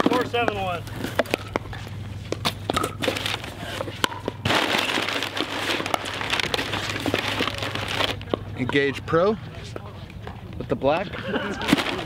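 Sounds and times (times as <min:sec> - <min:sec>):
packing paper crinkling: 0:04.5 - 0:08.2.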